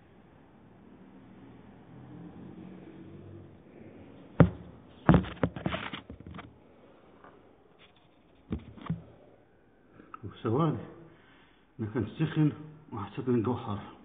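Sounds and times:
sharp knock: 4.4 - 5.6
quick clattering knocks: 4.4 - 6.5.

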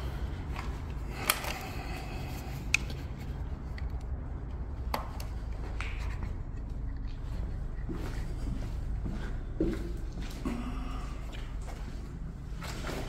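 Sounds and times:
low steady rumble: 0.0 - 13.0
footsteps on hard stairs: 6.7 - 12.0.

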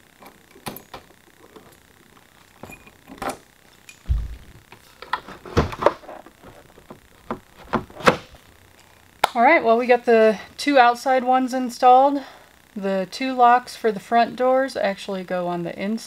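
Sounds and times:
dull thump: 4.1 - 4.6
knocks: 4.1 - 4.6
lock clicks and clunks: 7.3 - 8.3.

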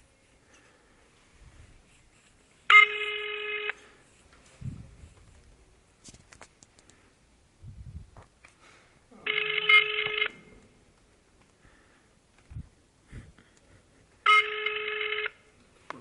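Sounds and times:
telephone ringback beep: 2.7 - 3.9, 9.3 - 10.4, 14.3 - 15.4.

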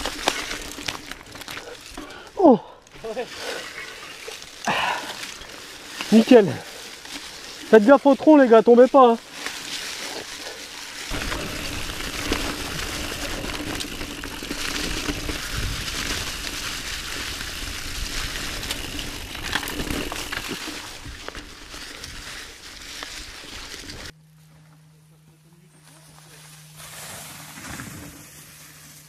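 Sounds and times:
bike rattling clicks: 0.0 - 2.2, 9.3 - 24.1
bike tyres rushing over leaves: 0.0 - 24.1, 25.8 - 29.0.

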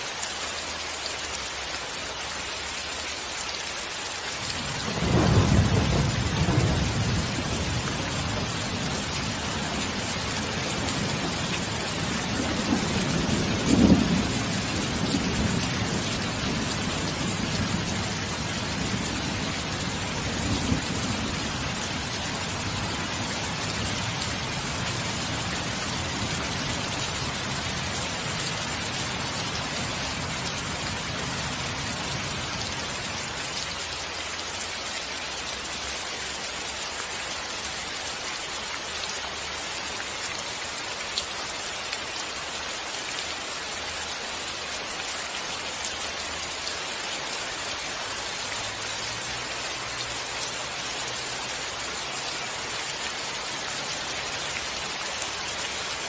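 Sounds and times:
steady rain: 0.0 - 56.0
low rumble of thunder: 4.6 - 32.4.

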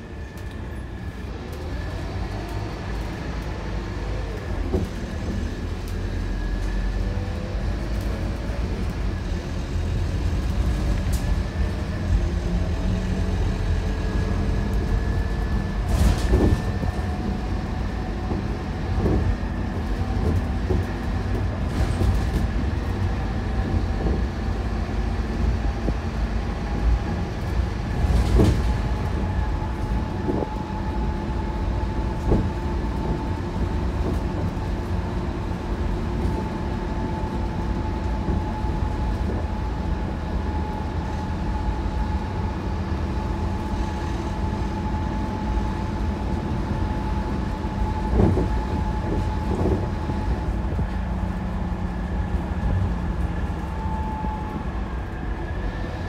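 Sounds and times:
bus diesel engine whine: 0.0 - 56.0
road rumble: 0.0 - 56.0
bus body knocks and rattles: 15.8 - 24.7, 26.7 - 31.1, 31.8 - 35.2.

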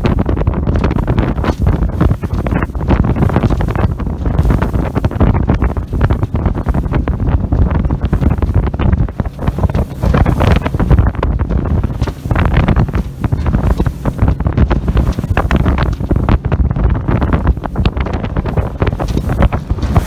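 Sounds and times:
water rushing along hull: 0.0 - 20.0
wind buffeting microphone: 0.0 - 20.0.

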